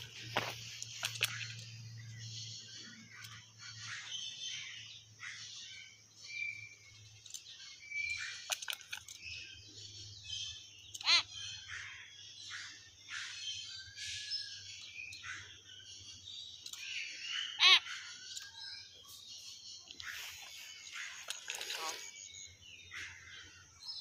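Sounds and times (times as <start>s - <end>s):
birds chirping and whistling: 0.0s - 24.0s
shrill bird call: 10.4s - 14.2s, 16.7s - 18.6s.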